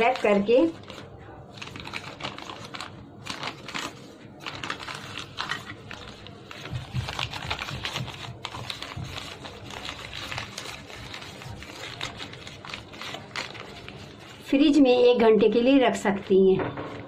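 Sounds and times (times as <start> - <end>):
newspaper crinkling and rustling: 0.0 - 14.6.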